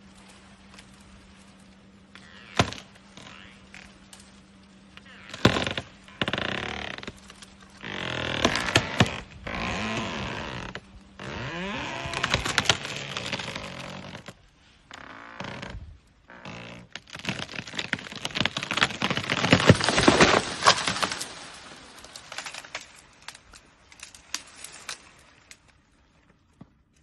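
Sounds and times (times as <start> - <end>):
tree cracking and splintering: 0.0 - 25.7
twigs snapping: 2.2 - 14.3, 16.7 - 25.8
crash of breaking trunk: 17.8 - 22.8.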